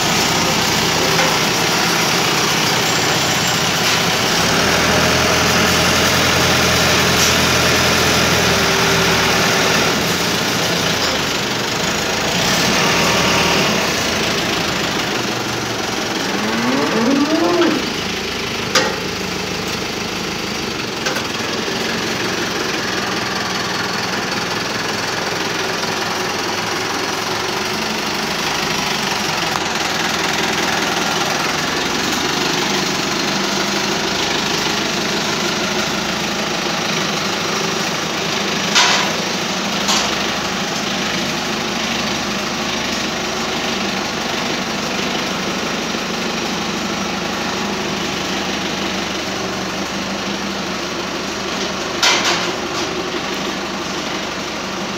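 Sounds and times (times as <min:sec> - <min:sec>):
tractor diesel engine running: 0:00.0 - 0:54.9
short rising tone: 0:16.1 - 0:18.0.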